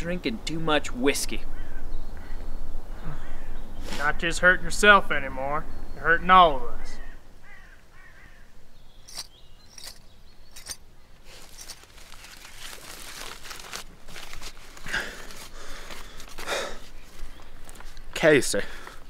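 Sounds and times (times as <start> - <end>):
paper crinkling: 11.3 - 18.1.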